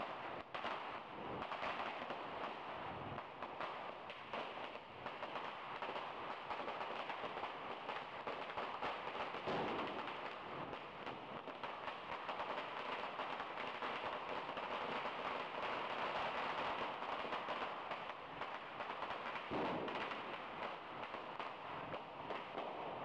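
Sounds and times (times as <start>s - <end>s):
firecrackers crackling: 0.0s - 23.0s.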